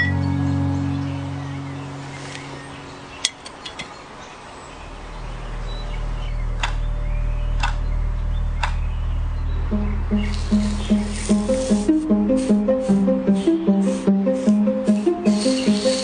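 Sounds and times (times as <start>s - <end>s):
low steady drone: 0.0s - 3.2s, 4.8s - 16.0s
sharp ticks: 6.6s - 6.8s, 7.6s - 7.8s, 8.6s - 8.8s.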